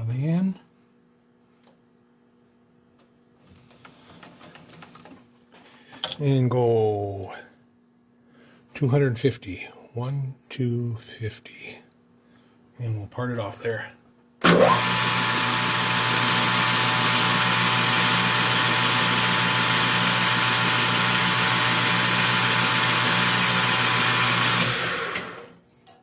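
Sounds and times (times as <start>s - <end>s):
blade cutting metal on lathe: 14.4s - 25.5s
lathe motor whining: 14.4s - 25.6s.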